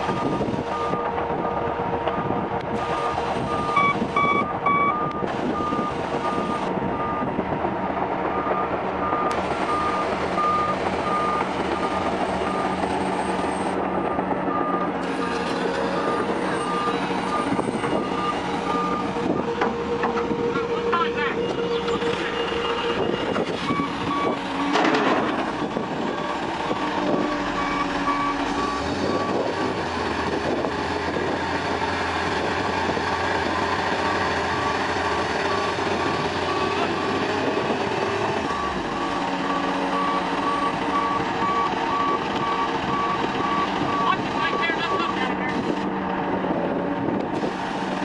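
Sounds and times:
diesel engine running: 0:00.0 - 0:48.0
backup alarm beeping: 0:00.2 - 0:07.3, 0:27.2 - 0:29.4.

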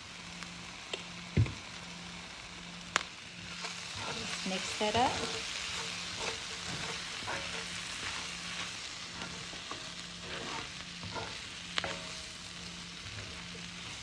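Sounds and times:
vegetables sizzling in a skillet: 0:00.0 - 0:14.0
utensil scraping a pan: 0:03.4 - 0:14.0.

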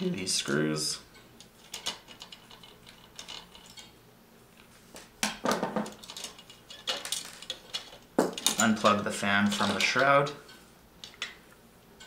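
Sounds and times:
small screws clattering: 0:05.8 - 0:11.4.

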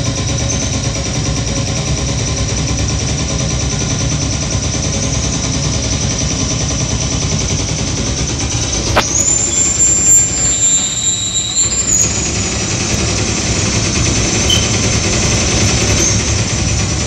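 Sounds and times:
high-pitched electronic squeal: 0:09.1 - 0:13.2, 0:14.4 - 0:15.0, 0:15.6 - 0:16.3
lower whistle: 0:09.1 - 0:13.3, 0:14.3 - 0:16.2.

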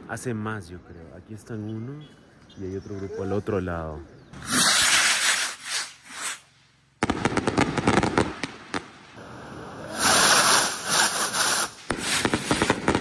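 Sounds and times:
skyrocket launch whoosh: 0:04.4 - 0:06.4
fireworks bangs and crackles: 0:04.4 - 0:13.0.

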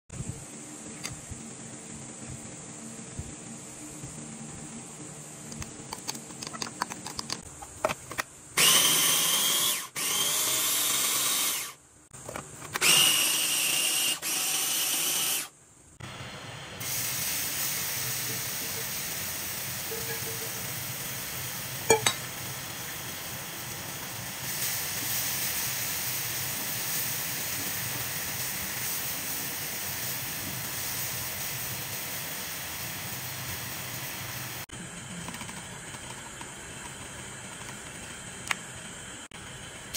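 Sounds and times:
food processor motor whirring: 0:08.6 - 0:11.8, 0:12.7 - 0:15.5
mushrooms sizzling in a frying pan: 0:16.8 - 0:34.7.

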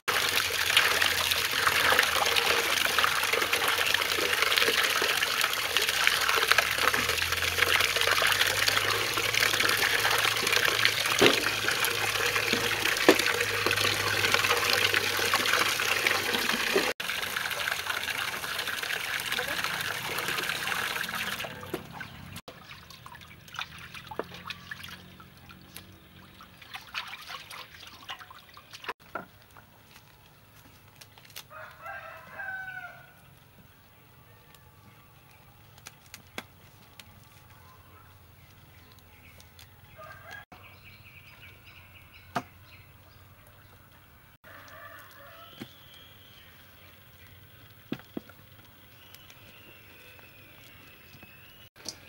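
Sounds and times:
water splashing in metal basin: 0:00.1 - 0:29.3
tap running: 0:05.7 - 0:16.9.

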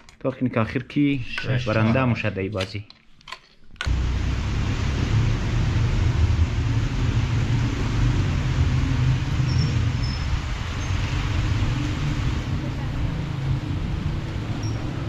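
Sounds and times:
heavy rain hissing: 0:03.9 - 0:15.0
wind buffeting microphone: 0:03.9 - 0:15.0.

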